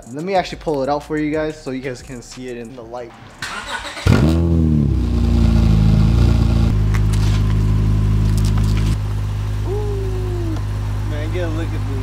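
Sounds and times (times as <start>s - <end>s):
car engine revving and idling: 3.3s - 12.0s.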